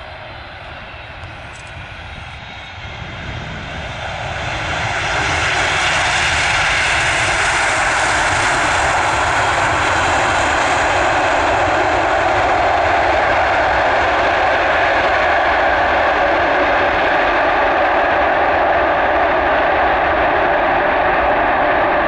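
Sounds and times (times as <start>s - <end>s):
jet engines rushing on landing: 0.0s - 22.0s.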